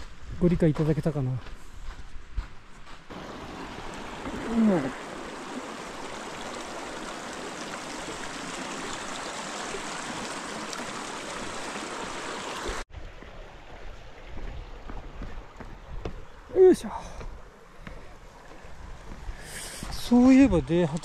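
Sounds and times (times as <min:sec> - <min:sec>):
creek rushing over rocks: 0:03.1 - 0:21.0.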